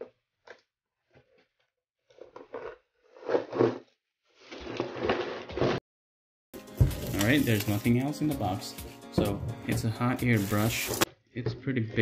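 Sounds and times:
cardboard box scraping and rustling: 7.0 - 7.7, 10.2 - 11.1
plastic bag crinkling: 7.0 - 8.0, 10.3 - 11.1.

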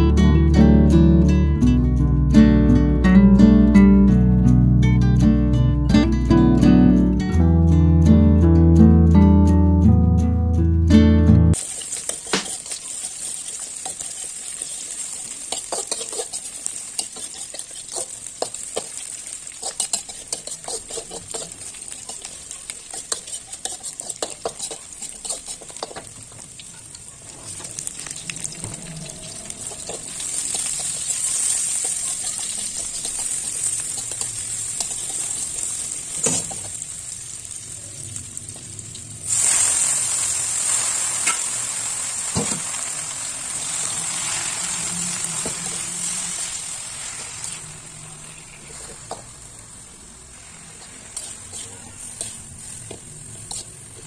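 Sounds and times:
metal spatula scraping a wok: 11.6 - 26.2, 27.5 - 36.8, 43.2 - 54.0
shallots and garlic sizzling in oil: 11.6 - 54.0.

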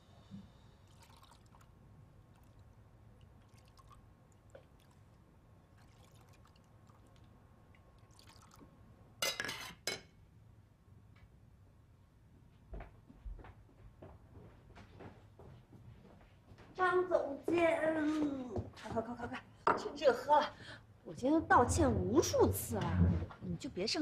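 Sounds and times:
liquid pouring and dripping: 0.8 - 8.8.

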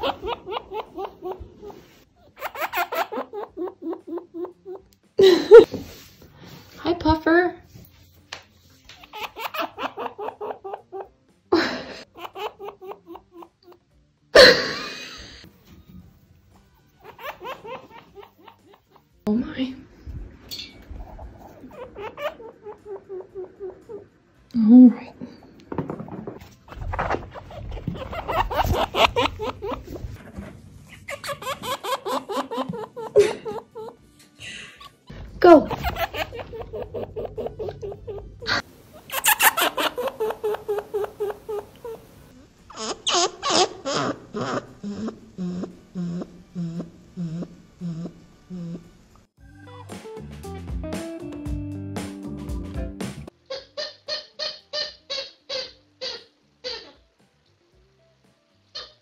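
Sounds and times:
chinchilla grunting: 44.1 - 48.8.

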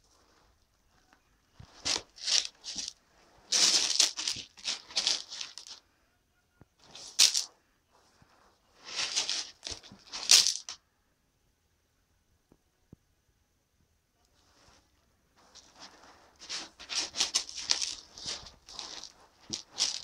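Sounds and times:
cat litter rustling and crunching: 1.5 - 5.8, 6.8 - 7.5, 8.3 - 10.8, 15.4 - 20.0.

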